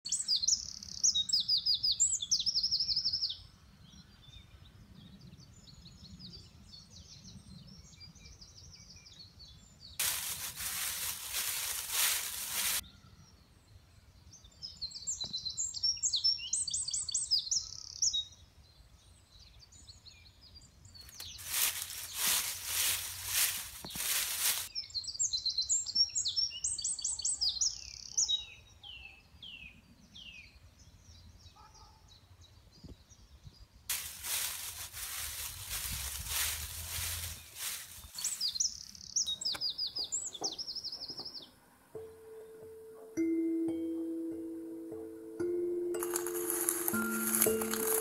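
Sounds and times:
rustling hiss: 0:10.0 - 0:12.8, 0:21.2 - 0:24.7, 0:33.9 - 0:38.7, 0:46.0 - 0:48.0
songbirds trilling: 0:10.0 - 0:13.4, 0:20.8 - 0:29.1, 0:34.0 - 0:42.9.

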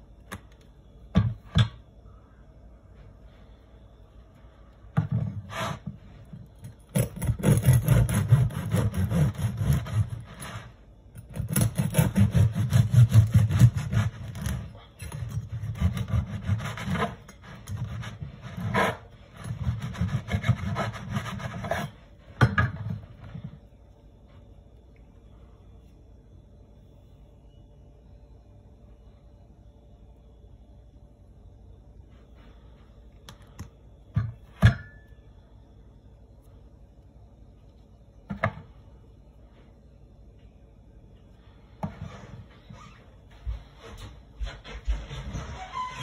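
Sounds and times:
bread knife sawing through crusty loaf: 0:06.9 - 0:22.0.

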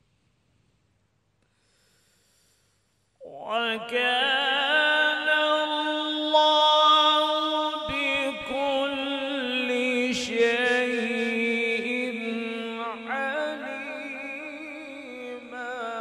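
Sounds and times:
man reciting melodically: 0:03.2 - 0:16.0.

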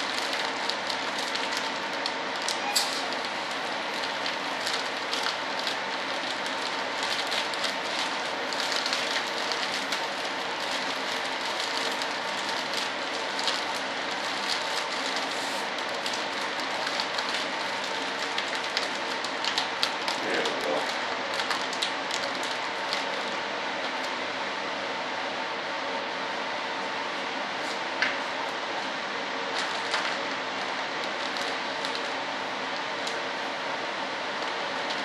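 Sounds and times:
plastic film crinkling: 0:00.0 - 0:23.4, 0:29.5 - 0:32.2
steady machine hum: 0:00.0 - 0:35.0.

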